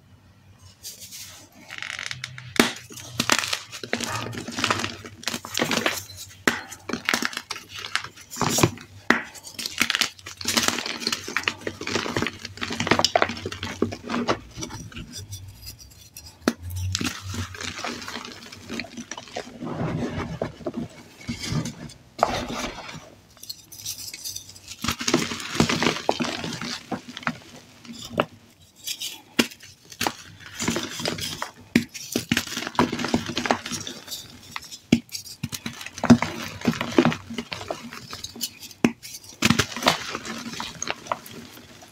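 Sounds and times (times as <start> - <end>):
chalk fragments clicking: 23.3 - 41.9.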